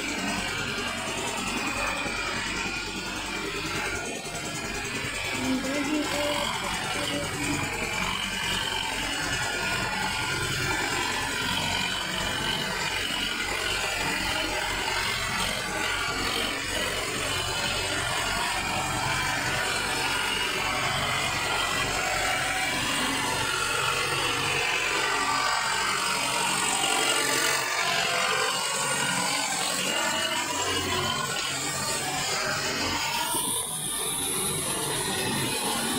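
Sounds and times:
diesel tractor engine running: 0.0s - 35.9s.

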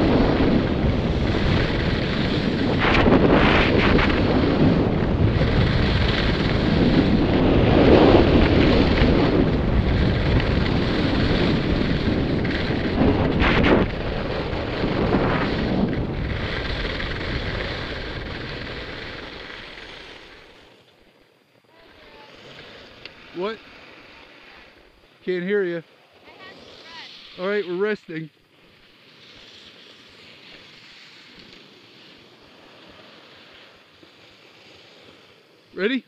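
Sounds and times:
wind buffeting microphone: 0.0s - 19.2s
skis scraping on snow: 0.0s - 21.0s, 21.7s - 36.0s.

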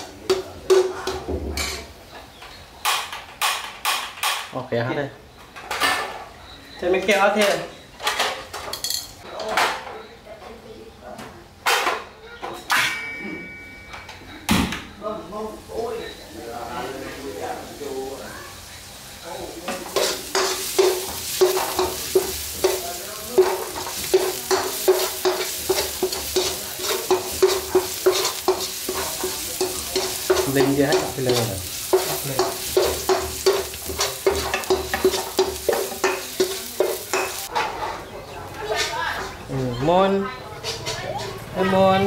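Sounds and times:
garlic sizzling in hot oil: 15.6s - 37.5s
metal spatula scraping a wok: 19.7s - 22.8s, 23.4s - 38.1s.

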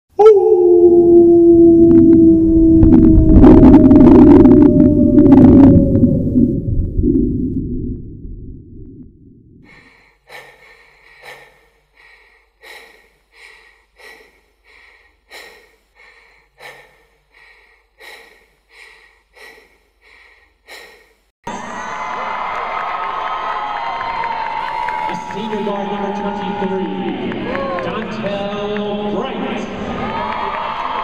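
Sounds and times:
low intro sound: 0.3s - 9.7s
heavy panting breaths: 9.7s - 21.3s
loud arena crowd: 21.5s - 31.0s.

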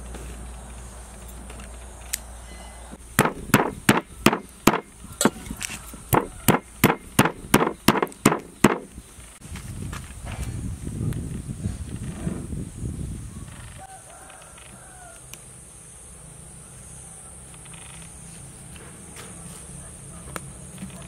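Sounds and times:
knife chopping on wooden board: 3.2s - 5.4s.

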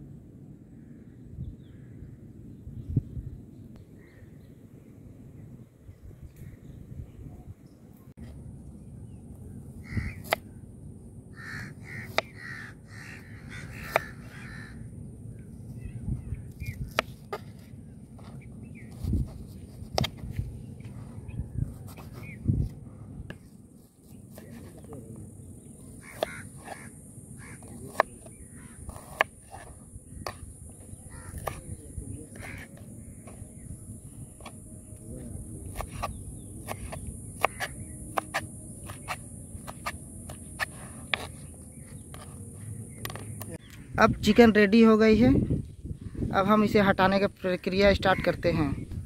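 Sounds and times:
crow cawing: 9.8s - 10.4s, 11.3s - 14.9s, 26.0s - 27.8s, 28.5s - 29.0s, 31.0s - 31.6s, 32.3s - 33.3s.

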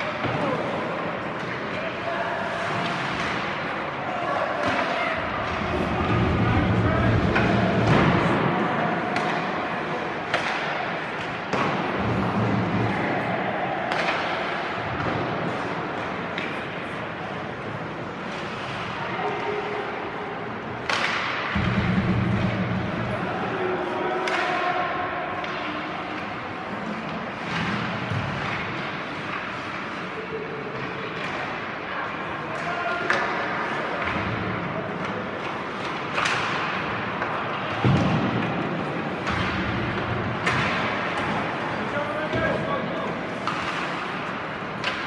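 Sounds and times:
arena noise from hockey play: 0.0s - 45.0s.

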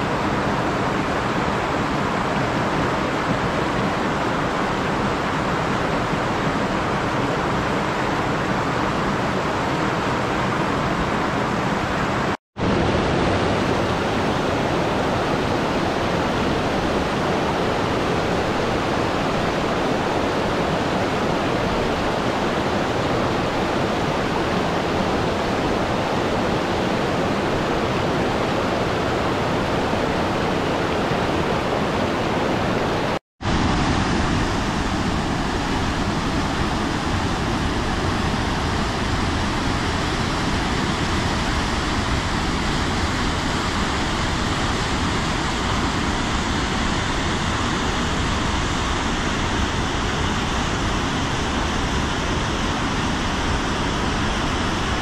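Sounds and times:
waterfall rushing: 12.6s - 55.0s.

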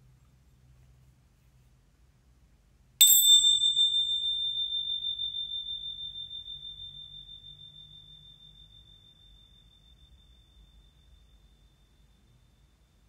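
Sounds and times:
meditation bell ringing: 3.0s - 13.0s.

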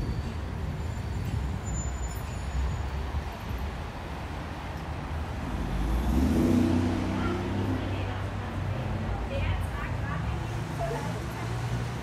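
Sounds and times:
road vehicles rumbling past: 0.0s - 12.0s.

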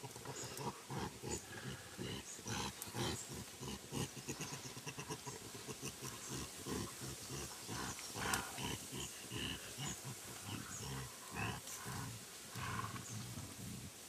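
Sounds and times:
gorillas grunting: 0.0s - 14.0s.

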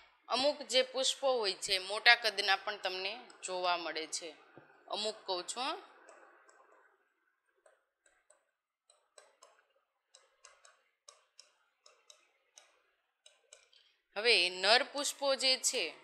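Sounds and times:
marker pen tapping on board: 7.6s - 13.8s.

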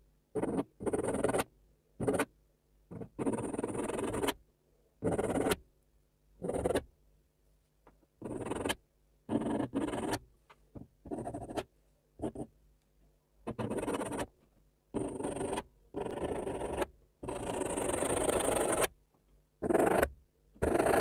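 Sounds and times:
pencil scratching on paper: 0.4s - 2.3s, 2.9s - 4.4s, 5.0s - 5.6s, 6.4s - 6.9s, 8.2s - 10.2s, 11.0s - 12.5s, 13.5s - 14.3s, 14.9s - 18.9s, 19.6s - 21.0s.

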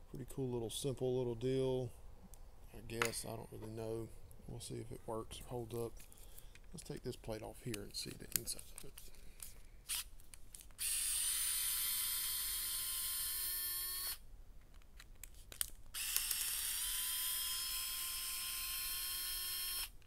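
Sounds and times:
electric screwdriver whining: 10.8s - 14.2s, 16.0s - 20.0s.

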